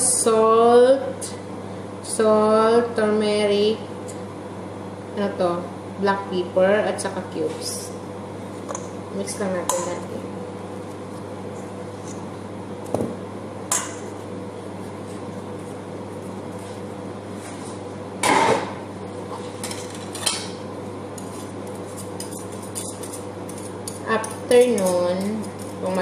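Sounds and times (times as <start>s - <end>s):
utensils clinking against metal bowl: 21.2s - 26.0s
whisk rattling in bowl: 21.2s - 26.0s.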